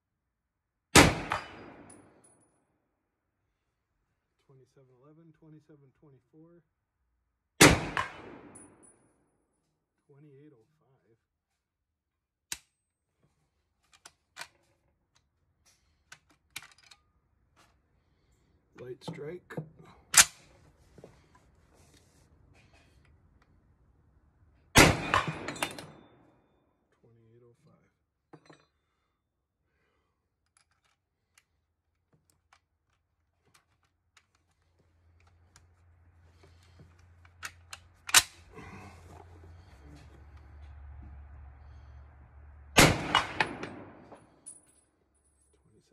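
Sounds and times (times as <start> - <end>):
gunshot crack with echo: 7.6 - 8.6
rifle action clicks and knocks: 13.8 - 17.1, 30.4 - 35.7, 36.4 - 38.5
rifle action clicks: 37.0 - 38.4.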